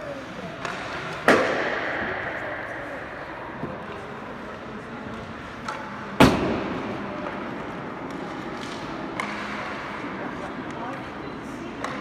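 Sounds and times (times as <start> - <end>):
puck and stick clicks: 0.5 - 2.0, 5.0 - 12.0
hockey puck struck with echo: 0.6 - 10.1, 11.7 - 12.0.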